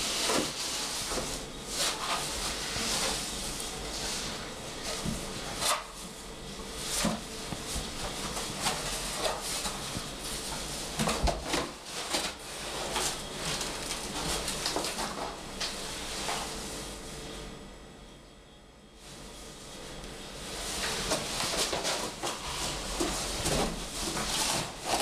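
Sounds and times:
cardboard box rustling and scraping: 0:20.5 - 0:25.0.

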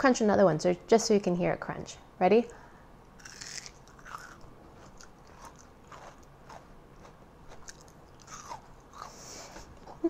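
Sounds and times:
mouth chewing crunchy candy: 0:03.2 - 0:09.4.

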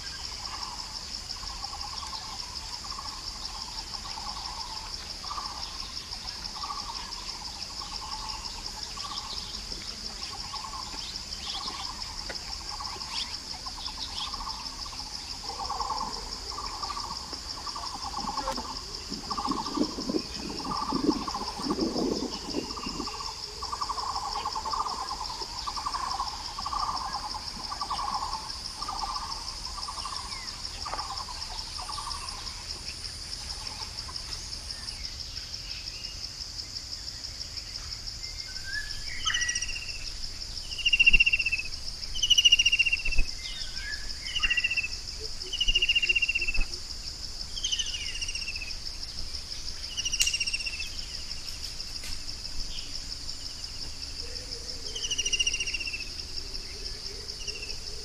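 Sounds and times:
high insect drone: 0:00.0 - 0:58.0.

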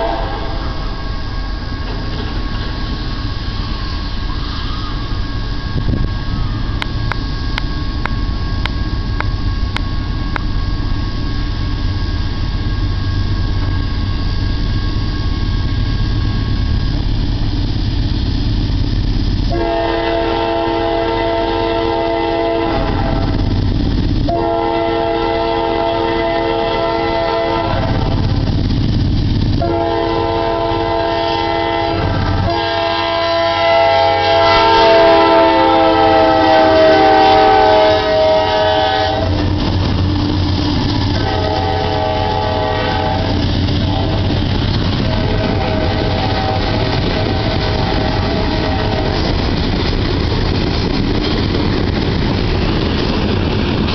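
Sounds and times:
locomotive horn blasts: 0:00.0 - 0:00.7, 0:19.5 - 0:23.4, 0:24.2 - 0:28.4, 0:29.6 - 0:39.5, 0:41.1 - 0:44.4, 0:45.0 - 0:49.3
diesel locomotive rumble: 0:00.0 - 0:53.9.

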